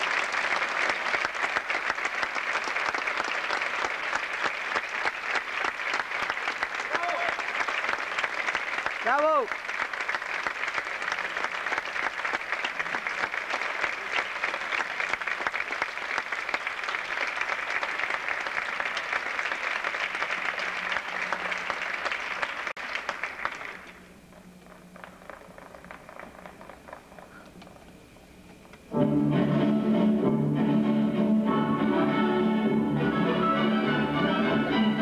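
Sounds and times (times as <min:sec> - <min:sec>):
audience applauding: 0:00.0 - 0:28.0
scattered claps: 0:00.0 - 0:28.0.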